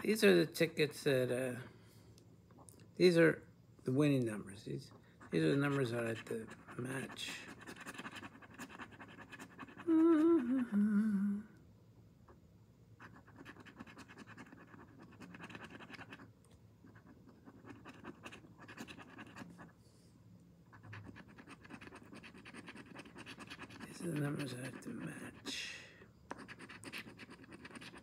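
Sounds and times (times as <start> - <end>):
lottery ticket being scratched: 5.3 - 10.2, 20.8 - 25.7, 26.4 - 28.0
person humming: 9.8 - 11.6.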